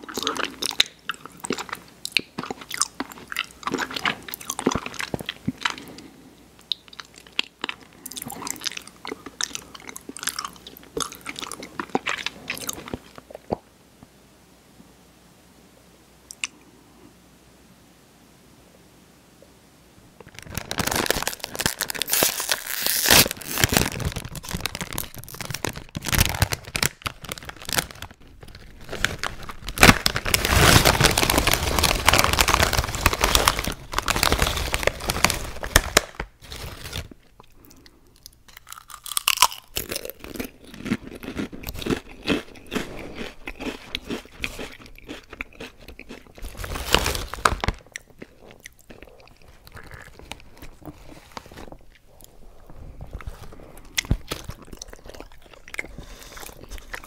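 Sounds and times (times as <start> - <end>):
potato chips crunching: 0.0 - 6.1, 6.7 - 13.6, 20.2 - 37.9, 38.5 - 52.4, 53.0 - 57.0
plastic bag crinkling: 20.2 - 37.4, 42.8 - 57.0.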